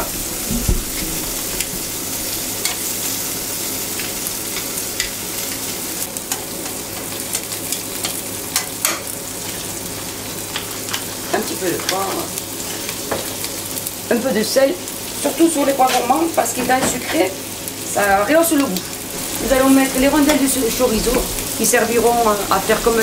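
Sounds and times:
food sizzling on a griddle: 0:00.0 - 0:23.0
metal tongs scraping griddle: 0:00.9 - 0:02.9, 0:19.2 - 0:23.0.

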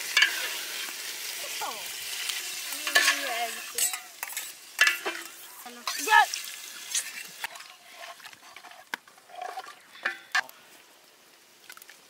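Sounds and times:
metal spatula stirring in pot: 0:00.1 - 0:00.7, 0:02.2 - 0:06.2, 0:06.8 - 0:10.4.

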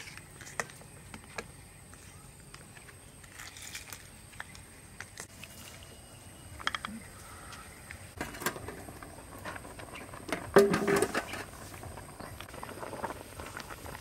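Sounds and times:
water boiling in a wok: 0:08.2 - 0:14.0.

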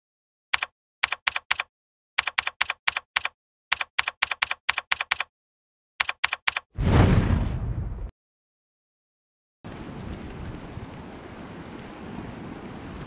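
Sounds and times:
keyboard key clicks: 0:00.6 - 0:05.3, 0:06.0 - 0:06.6.

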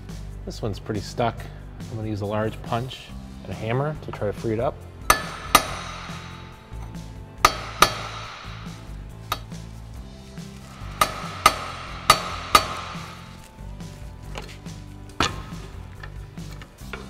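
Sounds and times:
hammer striking steel punch: 0:05.0 - 0:09.6, 0:10.7 - 0:13.5.

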